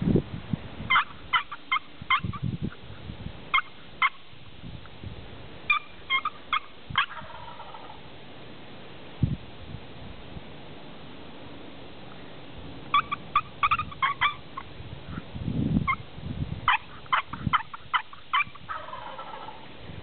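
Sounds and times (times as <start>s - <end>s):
turkey calling: 0.9s - 4.3s, 5.7s - 8.1s, 12.9s - 15.2s, 16.7s - 19.6s.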